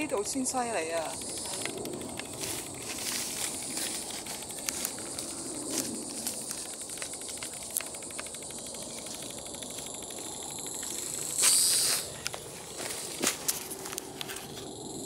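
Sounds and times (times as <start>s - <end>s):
insects trilling: 0.0s - 15.0s
rustling: 0.9s - 14.7s.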